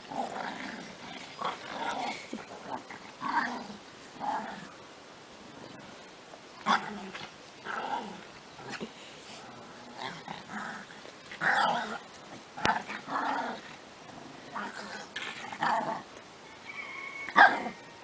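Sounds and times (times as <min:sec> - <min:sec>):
dogs growling: 0:00.0 - 0:04.8, 0:06.6 - 0:12.0, 0:12.6 - 0:16.1.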